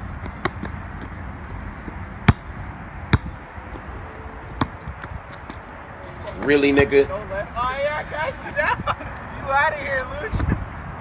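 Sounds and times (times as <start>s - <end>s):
basketball bouncing on asphalt: 0.0s - 5.8s.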